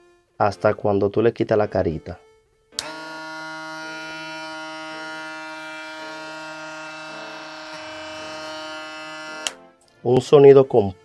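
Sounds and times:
electric shaver buzzing: 2.8 - 9.7.

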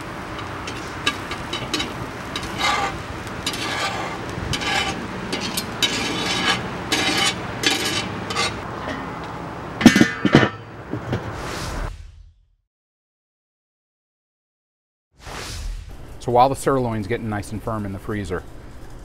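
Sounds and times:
utensil scraping cookware: 0.0 - 10.7
utensil clatter: 0.0 - 11.2.

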